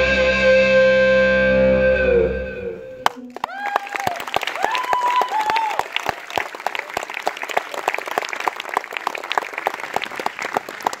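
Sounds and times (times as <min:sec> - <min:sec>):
audience applauding: 0:03.0 - 0:11.0.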